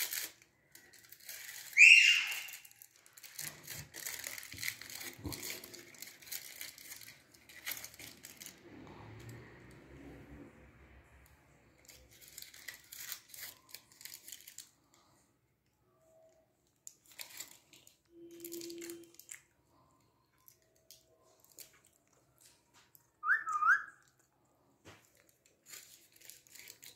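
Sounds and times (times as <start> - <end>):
sharp sliding whistle-like chirp: 1.8 - 2.5, 23.2 - 23.9.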